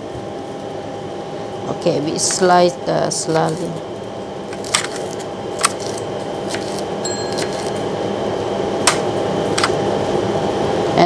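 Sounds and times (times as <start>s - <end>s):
rushing kitchen background: 5.6s - 9.0s.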